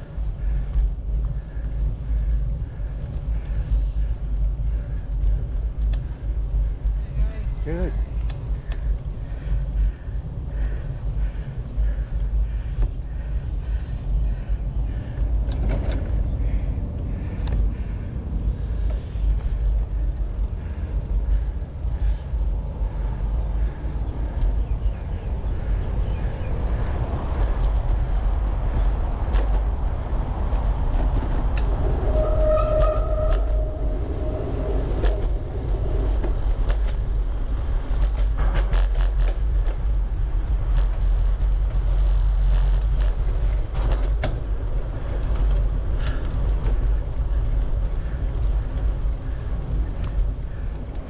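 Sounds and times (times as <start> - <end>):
wind buffeting microphone: 0.0 - 51.0
bicycle clicking creak: 0.6 - 7.0, 7.6 - 17.9, 36.1 - 51.0.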